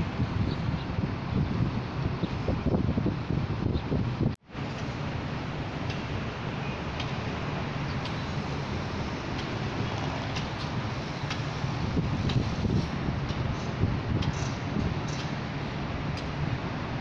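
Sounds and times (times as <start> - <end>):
distant city traffic hum: 0.0 - 17.0.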